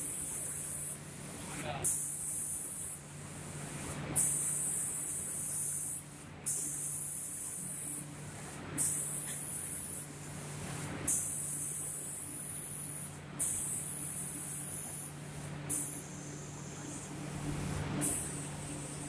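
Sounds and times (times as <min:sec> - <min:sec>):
spray guns hissing: 0:08.8 - 0:10.5, 0:11.1 - 0:19.0
low machine hum: 0:15.2 - 0:19.0.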